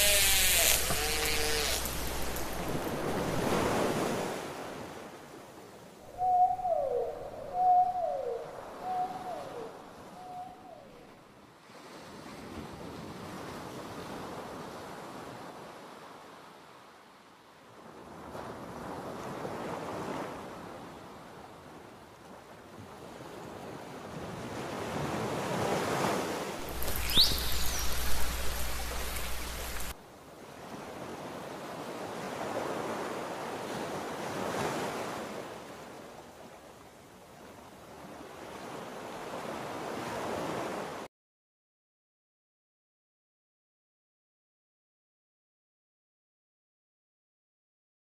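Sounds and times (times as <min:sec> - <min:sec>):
underwater water rushing: 0:01.8 - 0:04.5, 0:26.6 - 0:30.0
dolphin whistle: 0:10.1 - 0:10.9, 0:26.8 - 0:28.0.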